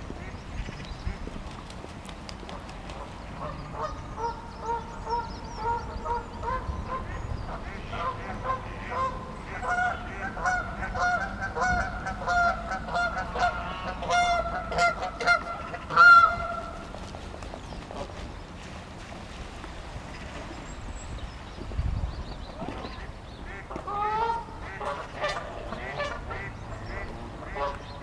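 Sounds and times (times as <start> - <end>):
geese honking: 3.4 - 16.9, 22.9 - 28.0.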